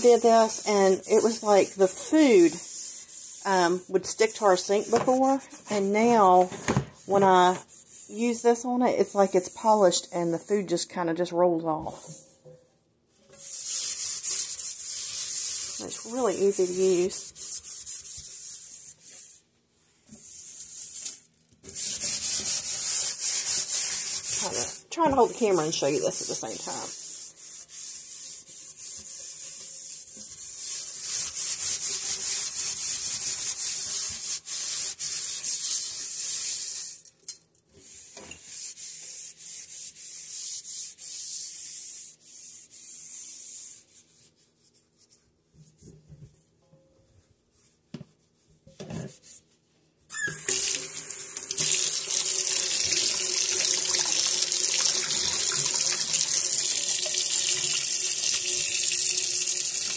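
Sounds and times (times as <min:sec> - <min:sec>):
pad scrubbing steel sink: 0:00.0 - 0:10.9, 0:13.3 - 0:19.4, 0:20.0 - 0:36.9
tap water running into sink: 0:50.2 - 0:59.9.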